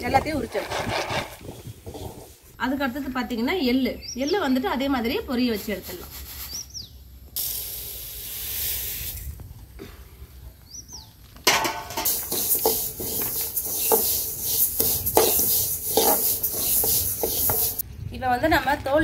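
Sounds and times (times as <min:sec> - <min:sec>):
seeds roasting in a pan: 0:11.4 - 0:17.8
stirring scraping in a pan: 0:11.7 - 0:17.8.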